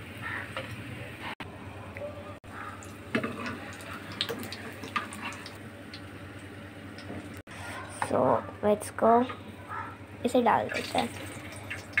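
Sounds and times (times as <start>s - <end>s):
frying in hot oil sizzling: 2.6s - 7.4s, 10.3s - 12.0s.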